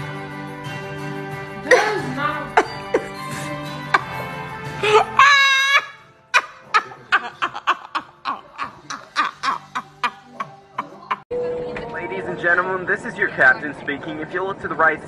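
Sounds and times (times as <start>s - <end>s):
person laughing hard: 4.8s - 11.2s.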